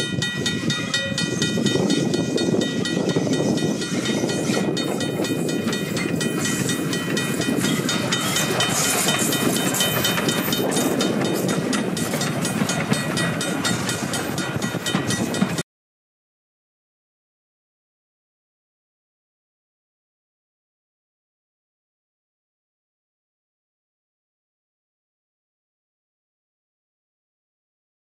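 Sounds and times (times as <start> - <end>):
steam locomotive running past: 0.0 - 15.6.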